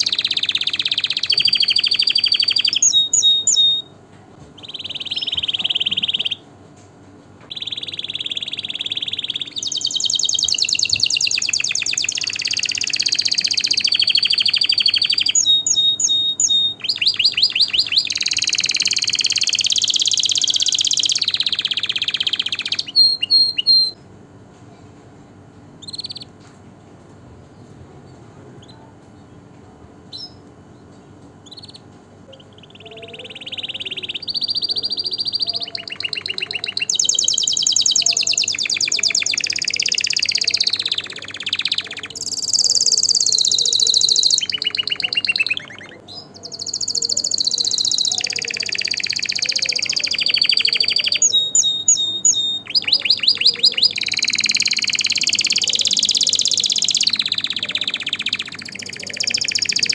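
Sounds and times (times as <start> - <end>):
canary singing trills: 0.0 - 4.0, 4.6 - 6.5, 7.5 - 24.0, 25.8 - 26.4, 28.6 - 29.4, 30.0 - 59.9.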